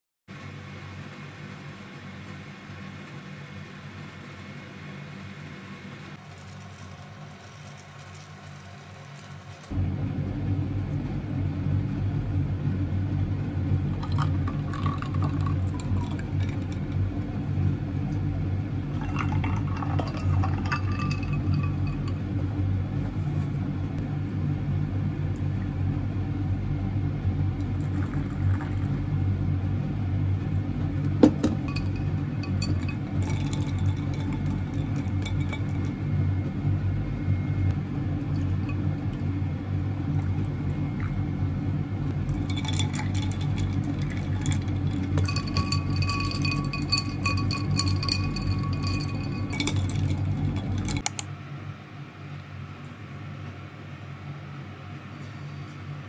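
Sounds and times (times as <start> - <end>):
steady low hum: 0.3 - 56.0
drinking glasses clinking: 19.0 - 22.2, 31.2 - 36.0, 42.4 - 51.1.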